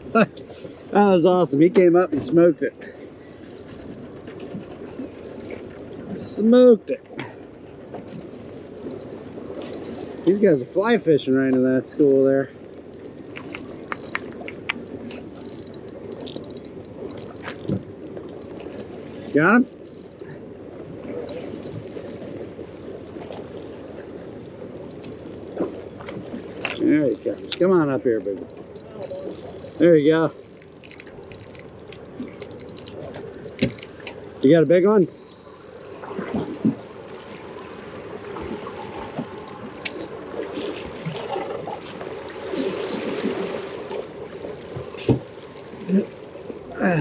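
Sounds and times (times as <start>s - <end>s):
water sloshing against boat hull: 0.0s - 46.8s
fish splashing and thrashing: 1.7s - 6.4s, 7.1s - 10.5s, 12.0s - 34.4s, 35.0s - 46.9s
fishing reel clicking: 3.3s - 5.9s, 12.7s - 18.9s, 24.4s - 25.6s, 27.4s - 34.4s, 35.0s - 35.9s, 39.8s - 40.2s.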